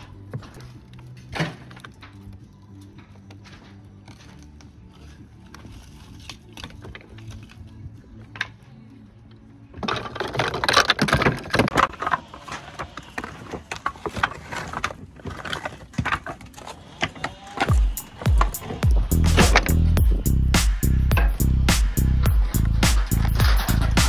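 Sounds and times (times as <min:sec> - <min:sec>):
roof slates knocking and scraping: 0:09.7 - 0:20.0, 0:22.5 - 0:24.0.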